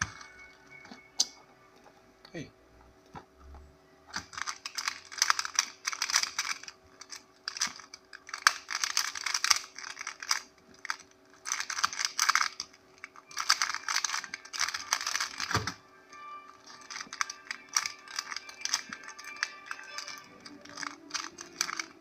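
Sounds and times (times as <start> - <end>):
plastic puzzle clicking and clacking: 4.1 - 15.8, 16.6 - 22.0.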